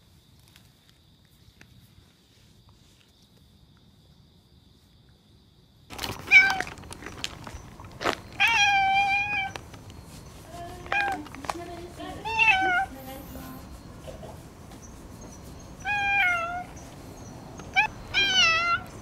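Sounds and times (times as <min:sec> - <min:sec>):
rustling: 0:05.9 - 0:19.0
cat meowing: 0:06.2 - 0:06.7, 0:08.4 - 0:09.6, 0:10.9 - 0:11.3, 0:12.2 - 0:12.9, 0:15.8 - 0:16.8, 0:17.6 - 0:19.0.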